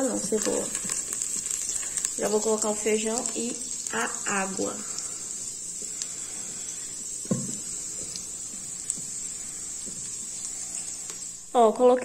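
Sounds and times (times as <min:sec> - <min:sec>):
garlic sizzling in a pot: 0:00.0 - 0:12.0
faint knocks: 0:07.2 - 0:07.7.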